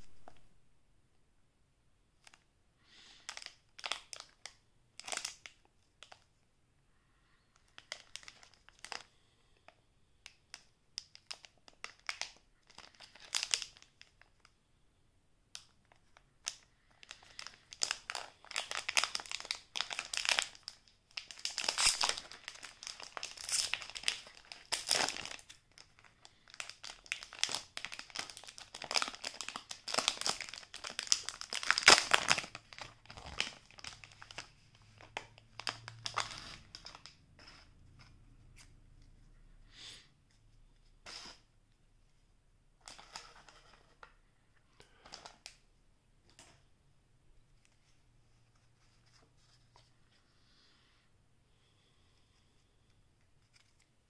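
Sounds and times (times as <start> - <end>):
plastic wrapper crinkling: 3.1 - 6.3, 7.6 - 9.1, 10.2 - 14.5, 15.5 - 38.7.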